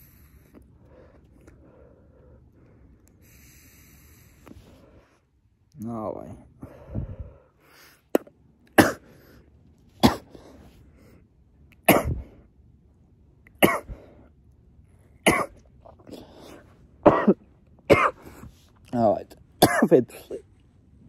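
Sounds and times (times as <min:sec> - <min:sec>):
breathing: 0:00.0 - 0:05.3, 0:06.6 - 0:08.1, 0:13.9 - 0:14.3, 0:16.1 - 0:16.8, 0:18.2 - 0:18.7
man coughing: 0:08.8 - 0:09.1, 0:10.0 - 0:10.4, 0:11.9 - 0:12.3, 0:13.6 - 0:14.0, 0:15.2 - 0:15.6, 0:17.0 - 0:18.3, 0:19.6 - 0:20.4.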